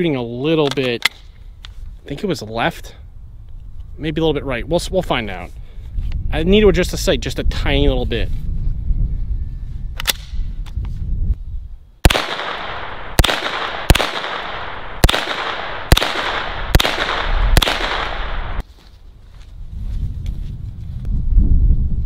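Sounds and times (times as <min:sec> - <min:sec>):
gunshots: 0:12.0 - 0:18.6.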